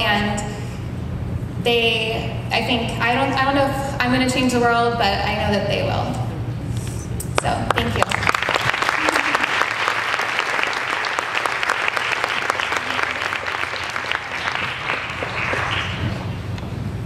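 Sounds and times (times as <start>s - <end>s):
audience applauding: 7.7s - 16.4s.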